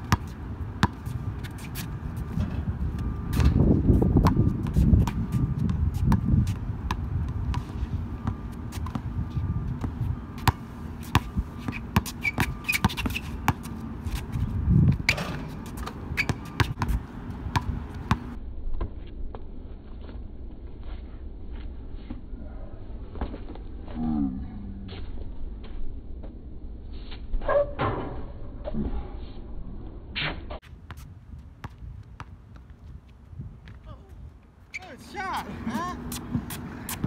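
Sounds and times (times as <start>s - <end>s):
basketball bouncing on hard court: 4.2s - 6.3s, 6.9s - 9.1s, 9.8s - 13.7s, 14.8s - 18.4s.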